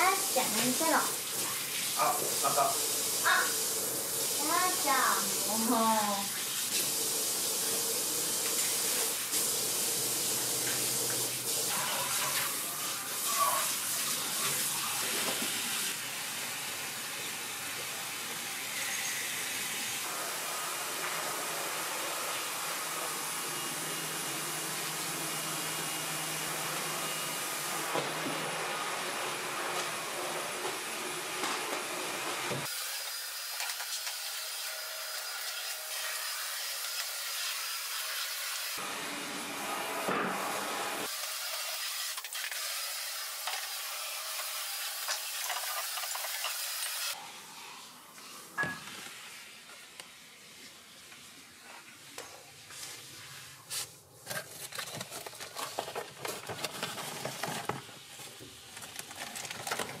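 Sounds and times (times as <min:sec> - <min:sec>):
stick vacuum cleaner running: 0:20.0 - 0:47.1.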